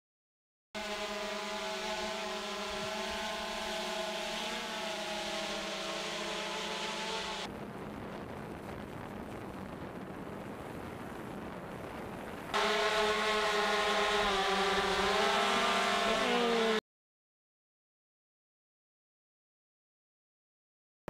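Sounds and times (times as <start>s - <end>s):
drone propellers humming: 0.8s - 8.7s, 11.0s - 16.8s
rough rushing noise: 0.8s - 16.8s.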